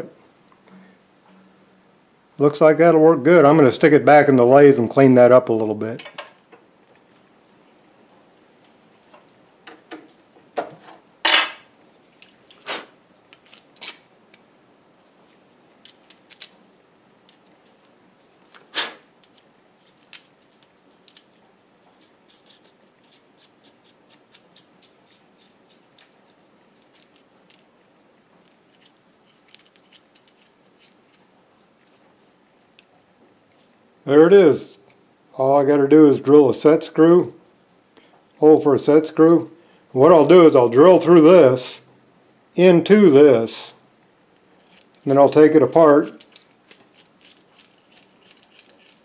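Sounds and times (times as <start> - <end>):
steel parts clinking on metal: 13.3 - 14.4, 15.8 - 16.7, 26.8 - 27.8, 28.4 - 31.2, 44.6 - 49.0.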